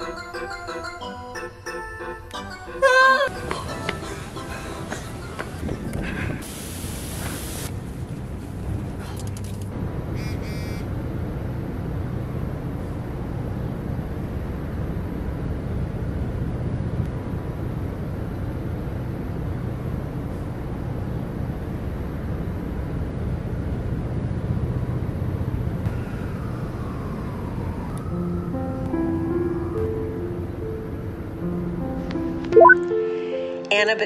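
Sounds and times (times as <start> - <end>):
high electronic tones: 32.6 - 32.8.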